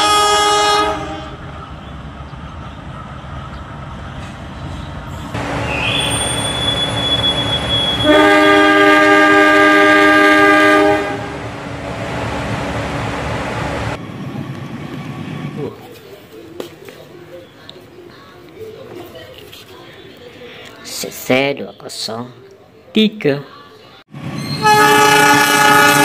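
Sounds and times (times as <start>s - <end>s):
locomotive horn blast: 0.0s - 1.4s, 5.4s - 14.0s, 24.6s - 26.0s
train rumble: 0.0s - 15.9s.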